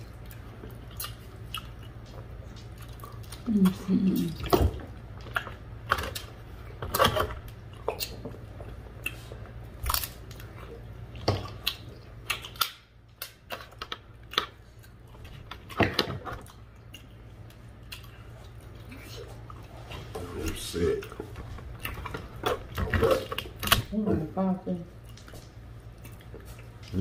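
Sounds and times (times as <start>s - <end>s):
chewing: 0.0s - 23.9s, 24.9s - 27.0s
crab shell cracking: 9.8s - 10.6s, 11.2s - 18.6s.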